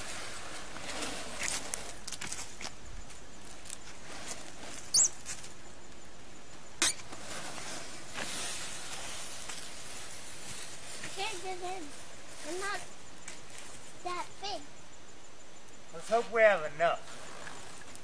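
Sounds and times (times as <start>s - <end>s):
plastic wrap crackling rustle: 7.1s - 14.1s.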